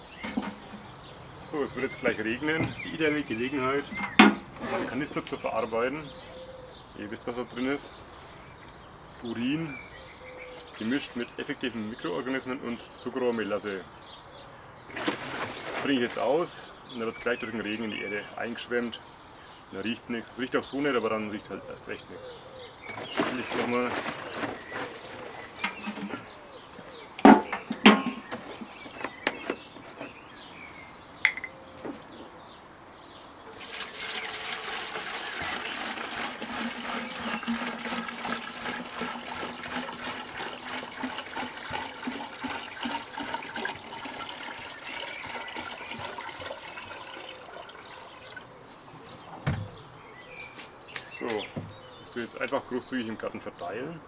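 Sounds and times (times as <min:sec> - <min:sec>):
plastic jerrycan handled and opened: 0:00.0 - 0:01.0, 0:01.8 - 0:05.3, 0:14.9 - 0:16.2, 0:22.8 - 0:26.3, 0:27.1 - 0:30.2, 0:33.5 - 0:44.2
liquid pouring into watering can: 0:14.9 - 0:16.0, 0:33.5 - 0:48.6.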